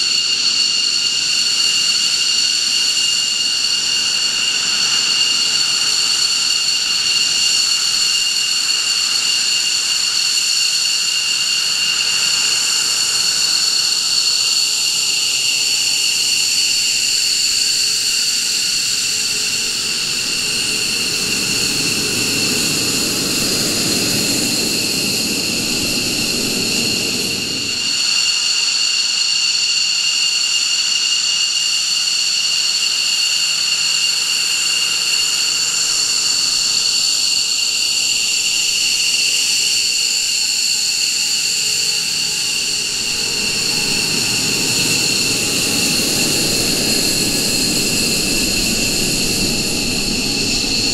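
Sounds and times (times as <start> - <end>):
jet engines high turbine whine: 0.0 - 50.9
deep jet rumble: 42.3 - 50.9.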